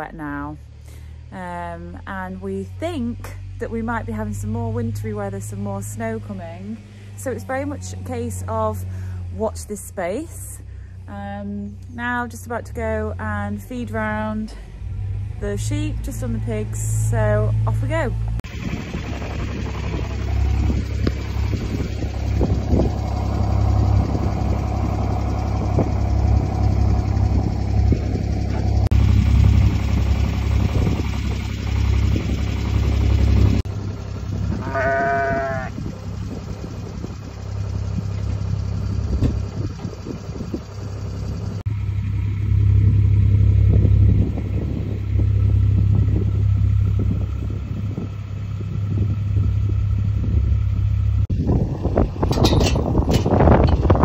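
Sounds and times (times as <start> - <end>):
low rumble: 0.0 - 54.0
sheep bleating: 34.5 - 35.8.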